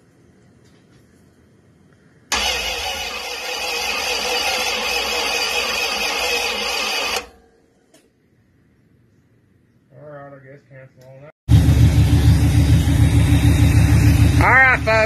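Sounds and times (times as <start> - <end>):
engine starting and running loud: 2.3 - 7.4, 11.5 - 15.0.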